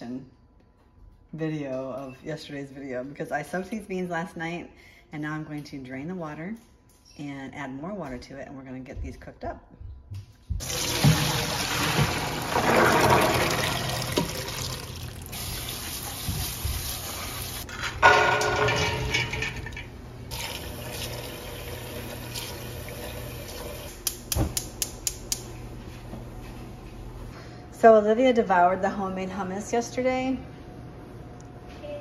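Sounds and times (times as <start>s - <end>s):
water splashing into sink: 10.6s - 17.6s, 20.3s - 23.9s.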